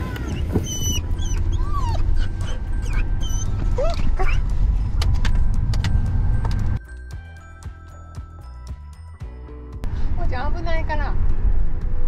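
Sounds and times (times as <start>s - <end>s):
wind and road noise rumble: 0.0s - 6.8s, 9.8s - 12.0s
soft music: 0.8s - 11.0s.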